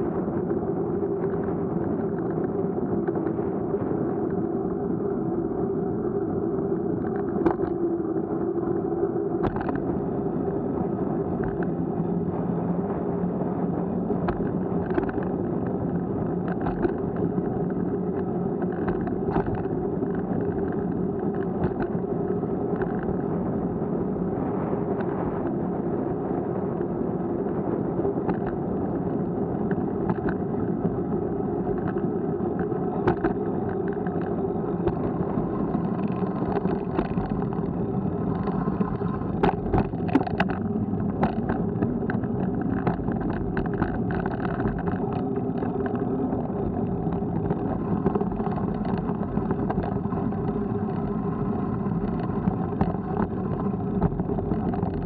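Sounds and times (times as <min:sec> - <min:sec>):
wheels rolling over asphalt: 0:00.0 - 0:55.0
knocks and rattles at bumps: 0:38.3 - 0:45.9.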